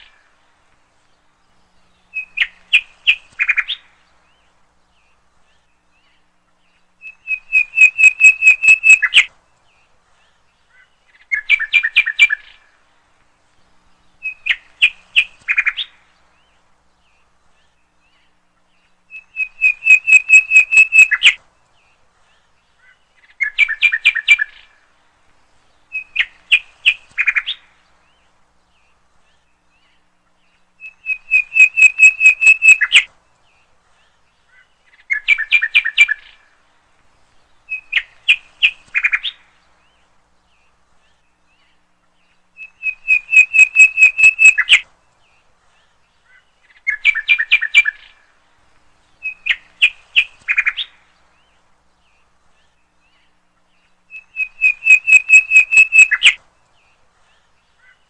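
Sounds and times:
bird chirping rapid high notes: 0:31.0 - 0:33.0, 0:42.8 - 0:44.8.

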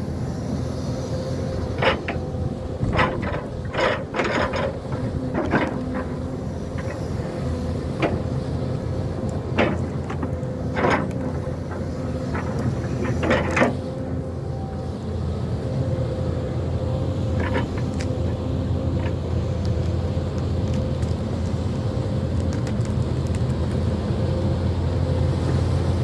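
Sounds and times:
engine whine: 0:00.0 - 0:26.0
excavator diesel engine running: 0:00.0 - 0:26.0
sharp knocks and cracks: 0:01.8 - 0:08.4, 0:09.2 - 0:13.8.

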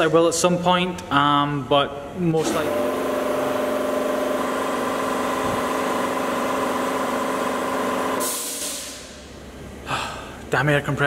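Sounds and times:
air compressor droning: 0:00.0 - 0:10.6
air hiss: 0:08.2 - 0:09.2.

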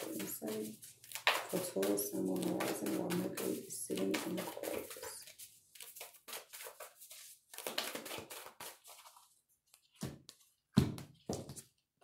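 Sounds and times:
cards riffling: 0:07.5 - 0:09.2.

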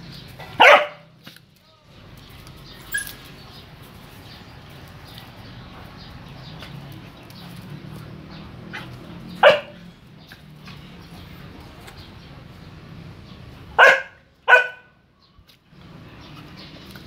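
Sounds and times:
dog barking: 0:00.5 - 0:01.1, 0:09.4 - 0:09.8, 0:13.8 - 0:15.0.

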